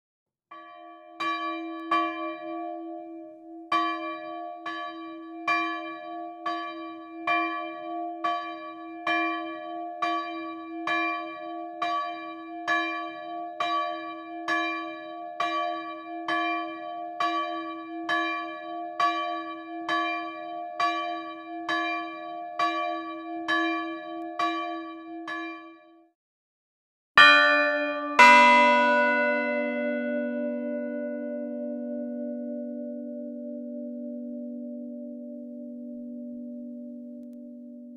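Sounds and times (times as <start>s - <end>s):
small wall bell ringing: 27.2s - 32.6s.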